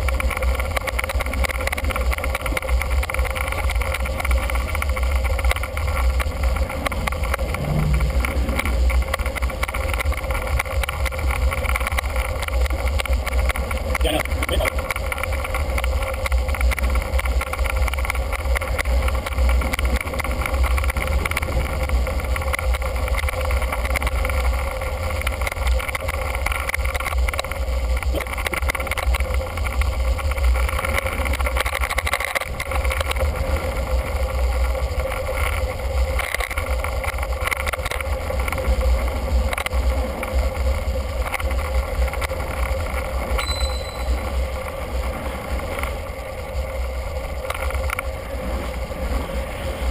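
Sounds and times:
brief high tone: 0:43.4 - 0:44.3.

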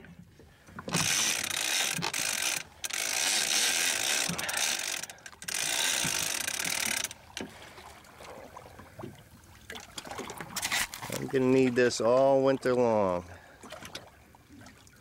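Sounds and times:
fishing reel ratchet buzzing: 0:00.9 - 0:07.4.

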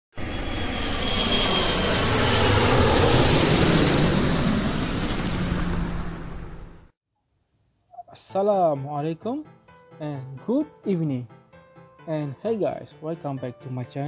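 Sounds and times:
jet aircraft flyby: 0:00.2 - 0:06.9.

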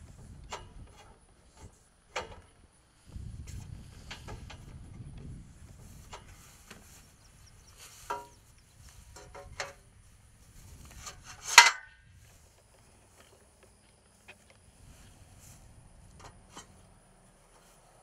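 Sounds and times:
metal rails knocking and clanking: 0:00.5 - 0:02.5, 0:05.7 - 0:09.9, 0:10.8 - 0:12.0.

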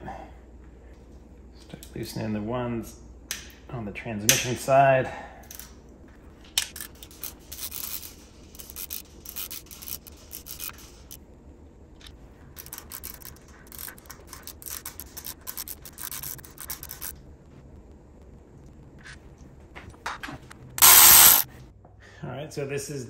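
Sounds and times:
ratchet wrench clicking: 0:20.8 - 0:21.4.

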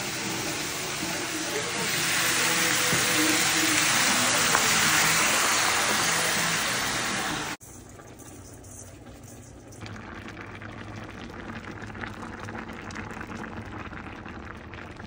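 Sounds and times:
vegetables sizzling in a frying pan: 0:00.0 - 0:07.6
water poured onto hot pan: 0:00.0 - 0:07.6.

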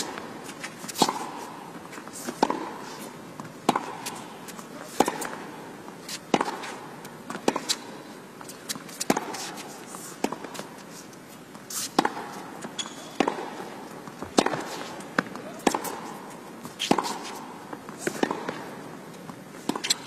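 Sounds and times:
racket hitting tennis ball: 0:00.0 - 0:10.9, 0:11.5 - 0:19.0, 0:19.6 - 0:20.0
footsteps on court: 0:00.0 - 0:20.0
ball bouncing on court: 0:12.0 - 0:14.6.

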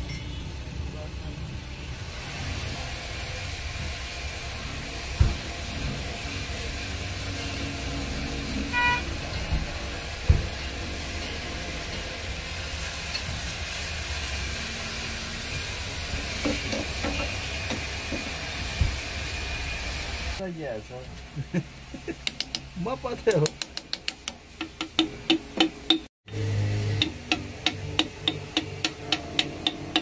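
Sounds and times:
low rumble of traffic: 0:00.0 - 0:30.0
car horn toot: 0:08.6 - 0:09.3.

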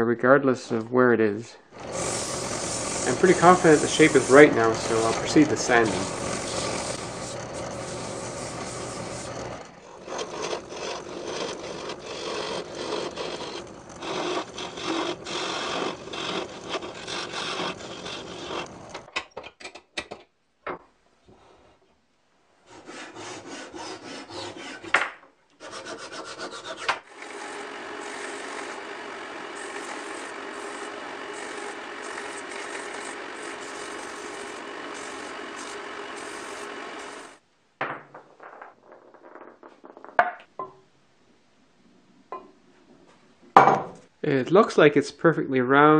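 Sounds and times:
belt sander running: 0:01.7 - 0:19.1, 0:27.1 - 0:37.4
sandpaper scratching wooden ball: 0:01.8 - 0:19.1, 0:25.6 - 0:37.4.

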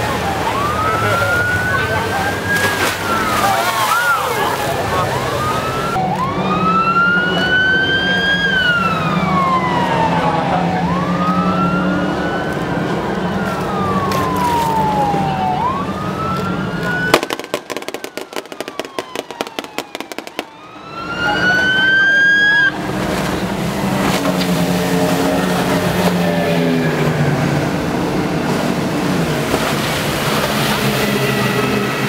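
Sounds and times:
siren wailing: 0:00.0 - 0:22.9
fast boat engines droning: 0:00.0 - 0:32.0
rapid sharp cracks: 0:17.1 - 0:20.5.

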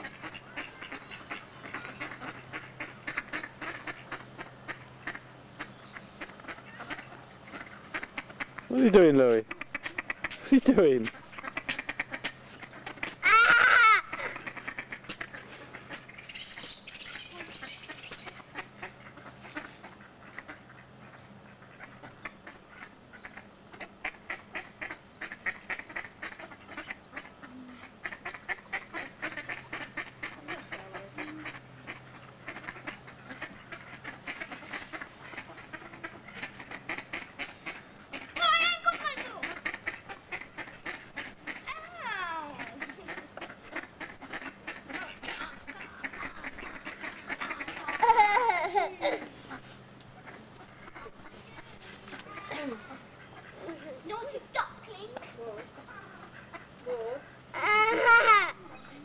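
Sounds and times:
ducks quacking: 0:00.0 - 0:59.0
loud high duck call: 0:11.4 - 0:16.0, 0:23.3 - 0:49.2, 0:56.0 - 0:58.6.

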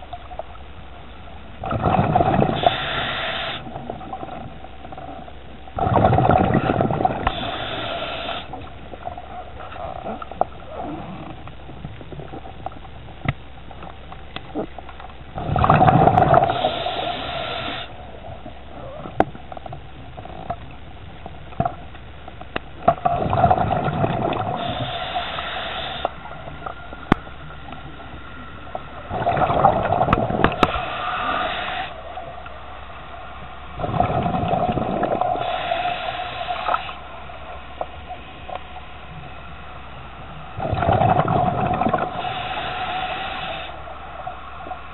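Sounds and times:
diver breathing with bubbles: 0:01.6 - 0:12.8, 0:14.5 - 0:20.6, 0:22.8 - 0:32.7, 0:33.5 - 0:44.9.

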